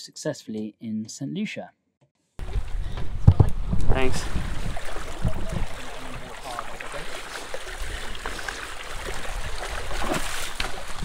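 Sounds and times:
water rushing along hull: 0:02.4 - 0:11.0.

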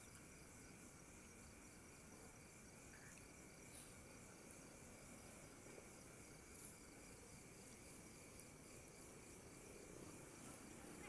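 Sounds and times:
crickets trilling: 0:00.0 - 0:11.0.

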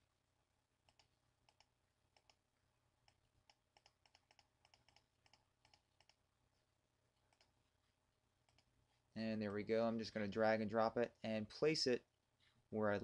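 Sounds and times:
computer mouse clicks: 0:00.8 - 0:02.4, 0:03.0 - 0:06.2, 0:07.3 - 0:07.5, 0:08.4 - 0:08.7.

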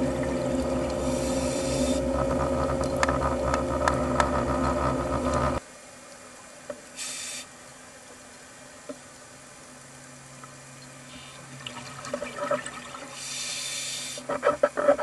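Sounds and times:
underwater mechanical hum: 0:00.0 - 0:15.0
water background: 0:00.0 - 0:15.0
short hiss: 0:07.0 - 0:07.6.

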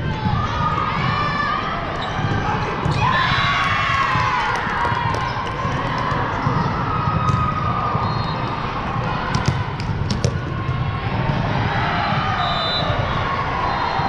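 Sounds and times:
players calling and shouting: 0:00.0 - 0:14.0
volleyballs slapping and bouncing: 0:02.2 - 0:08.1, 0:08.7 - 0:12.3.

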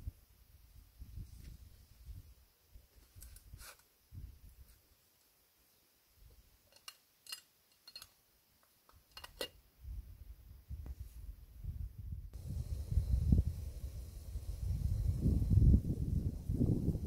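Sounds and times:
metal pot clinking: 0:06.7 - 0:08.1
low rumble: 0:12.3 - 0:17.0.

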